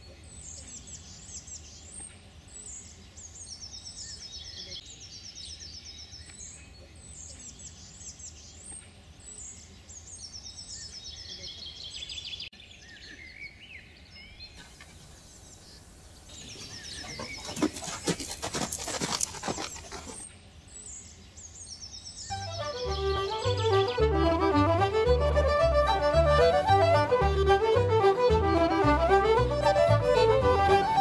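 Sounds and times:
songbirds singing: 0.0s - 23.9s.

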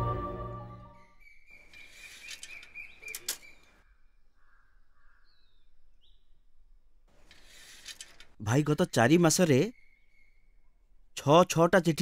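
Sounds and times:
background music: 0.0s - 1.1s
birds chirping: 0.6s - 6.5s, 7.5s - 11.6s.

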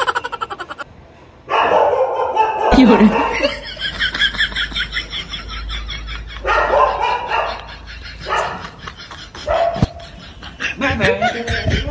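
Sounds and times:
dog barking: 1.5s - 3.6s, 6.4s - 8.7s, 9.4s - 10.0s.

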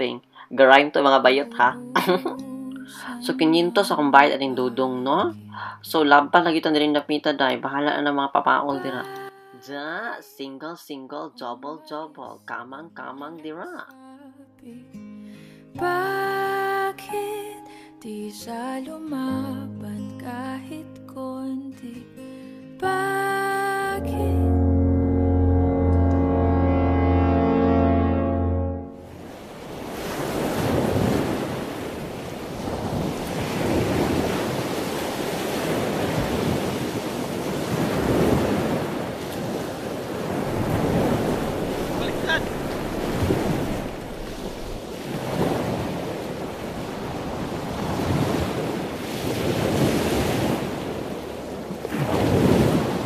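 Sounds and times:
waves breaking: 24.2s - 53.0s
wind buffeting microphone: 29.1s - 53.0s.

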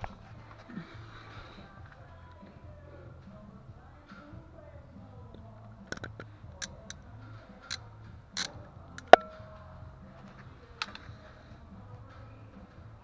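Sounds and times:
sharp metal clank: 9.0s - 9.6s.

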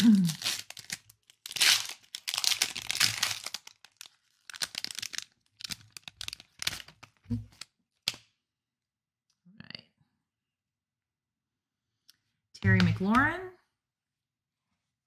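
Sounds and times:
foil wrapper crinkling: 0.0s - 7.7s.

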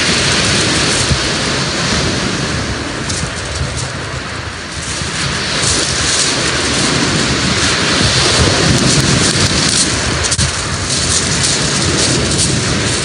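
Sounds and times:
surf breaking on shingle: 0.0s - 13.0s
wind rumbling on microphone: 0.0s - 13.0s.

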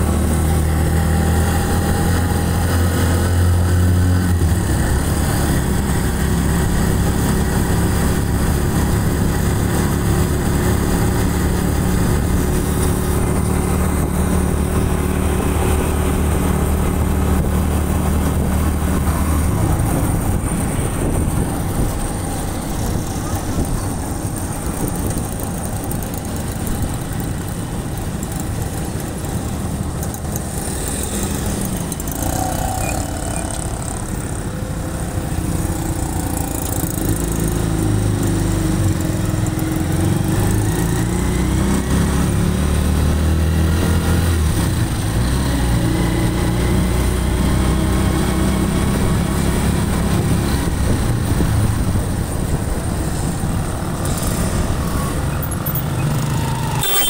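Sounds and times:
road noise: 0.0s - 57.0s.

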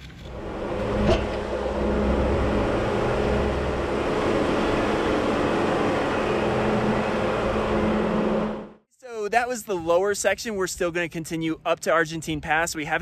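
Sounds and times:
off-road vehicle engine drone: 0.0s - 8.8s.

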